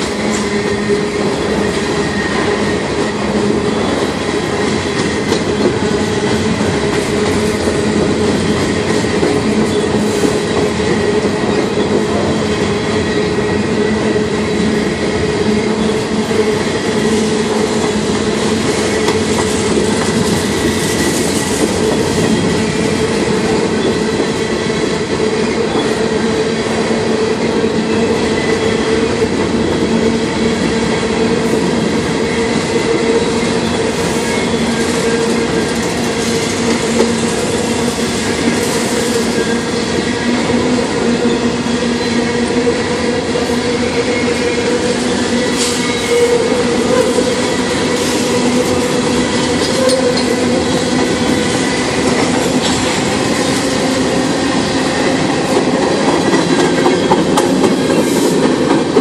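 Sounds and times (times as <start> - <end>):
train wheels rumbling on rail: 0.0 - 59.0.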